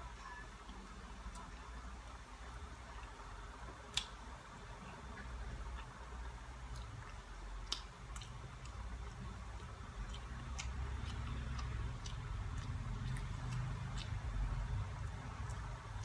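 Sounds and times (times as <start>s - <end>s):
low steady hum: 0.0s - 16.0s
person chewing: 4.9s - 16.0s.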